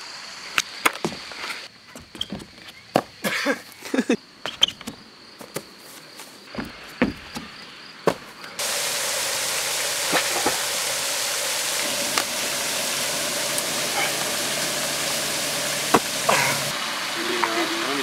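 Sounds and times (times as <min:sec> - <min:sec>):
high insect trill: 0:00.0 - 0:08.6
hands and feet striking concrete: 0:00.8 - 0:03.6, 0:04.5 - 0:08.5, 0:15.9 - 0:16.6
fountain spray hissing: 0:08.5 - 0:18.0.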